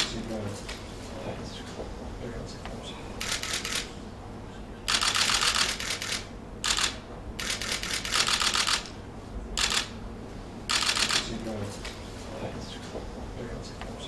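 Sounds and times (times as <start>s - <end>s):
rapid mechanical clicking: 3.2s - 3.9s, 4.9s - 8.9s, 9.6s - 9.9s, 10.7s - 12.0s.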